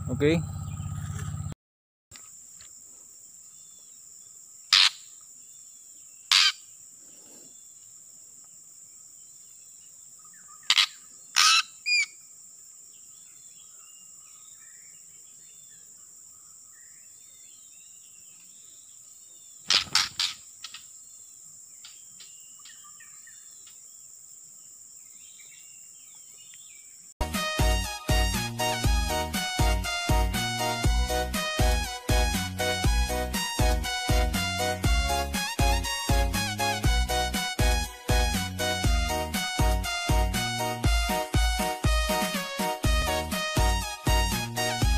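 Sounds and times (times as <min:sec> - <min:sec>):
insects droning: 0:00.0 - 0:01.6, 0:02.2 - 0:27.2
faint bird chirps: 0:12.9 - 0:27.0.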